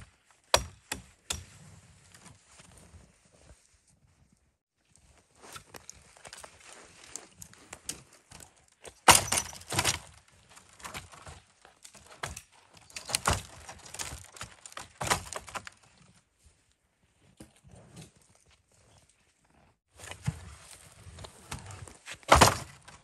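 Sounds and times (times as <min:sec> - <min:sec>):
sharp knocks and cracking impacts: 0:00.5 - 0:01.6, 0:08.8 - 0:15.8, 0:22.2 - 0:23.0.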